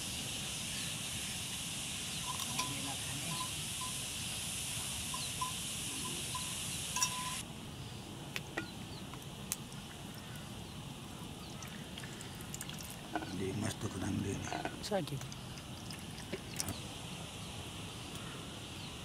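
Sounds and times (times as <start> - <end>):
high-pitched insect buzzing: 2.0 - 7.4
metal vessel clinking on steel bowl: 2.3 - 3.5, 6.4 - 7.4
bell-like tinkles: 2.3 - 4.0, 5.1 - 7.4.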